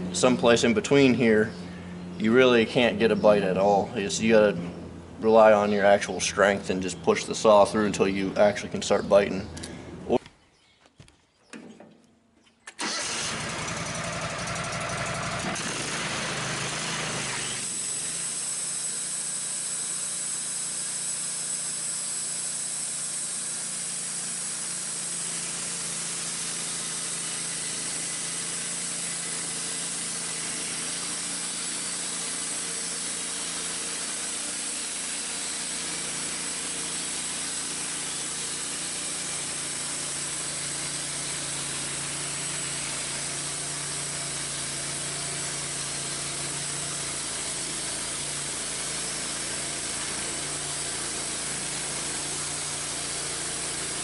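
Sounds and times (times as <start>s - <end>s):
sawmill engine running: 0.0s - 10.2s, 12.7s - 54.0s
band blade sawing log: 14.6s - 54.0s.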